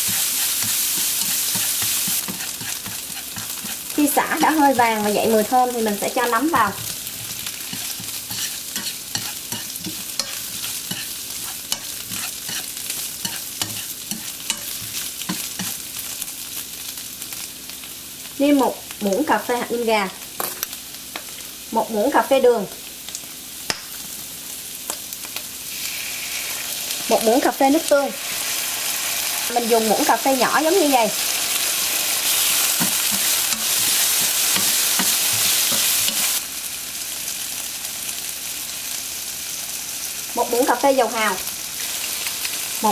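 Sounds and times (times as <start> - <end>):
chopsticks clicking and scraping pan: 0.0 - 15.8, 32.3 - 36.4
mushrooms sizzling in hot oil: 0.0 - 42.9.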